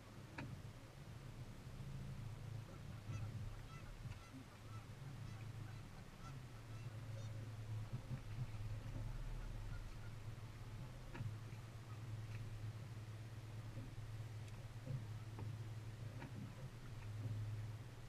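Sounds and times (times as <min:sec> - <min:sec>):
outboard motor humming: 0:00.0 - 0:18.0
geese honking: 0:02.7 - 0:07.5, 0:08.9 - 0:10.2.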